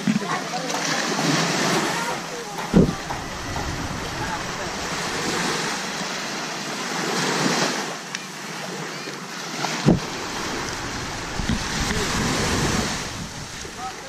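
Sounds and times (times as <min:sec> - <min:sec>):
small waves on sandy shore: 0:00.0 - 0:14.0
wind on microphone: 0:01.6 - 0:06.2, 0:09.8 - 0:14.0
dull thump: 0:02.1 - 0:05.7, 0:09.9 - 0:14.0.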